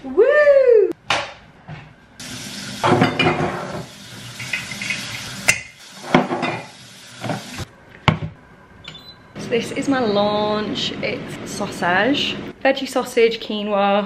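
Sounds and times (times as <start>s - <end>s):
food hissing in a pan: 2.2s - 3.0s, 3.6s - 7.7s
pan and utensils clinking: 2.8s - 7.5s.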